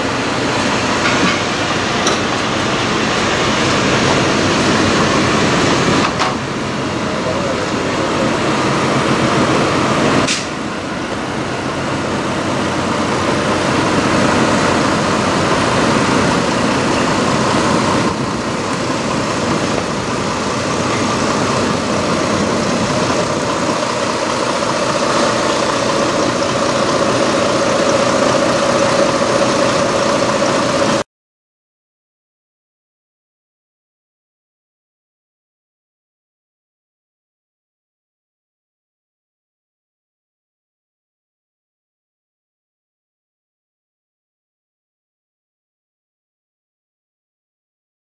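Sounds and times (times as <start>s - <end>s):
truck diesel engine idling: 0.0s - 31.0s.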